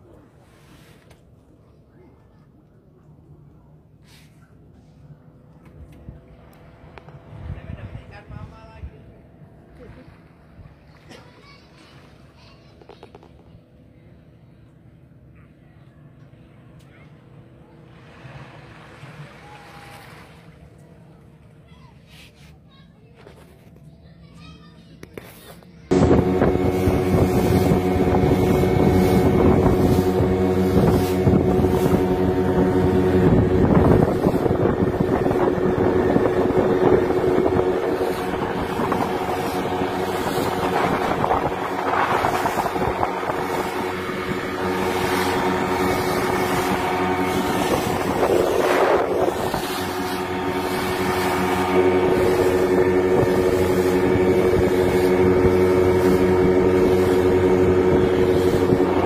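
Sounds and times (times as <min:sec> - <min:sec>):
outboard motor running: 0:00.0 - 0:59.0
wind on microphone: 0:25.9 - 0:59.0.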